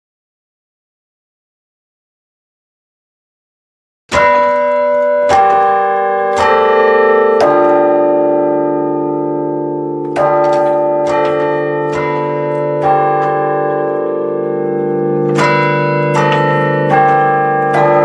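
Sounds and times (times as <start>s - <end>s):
carillon bells ringing: 4.1s - 18.0s.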